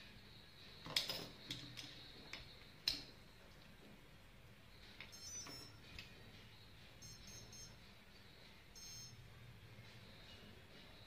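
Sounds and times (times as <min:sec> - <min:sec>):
faint steady high tone: 0:04.8 - 0:11.0.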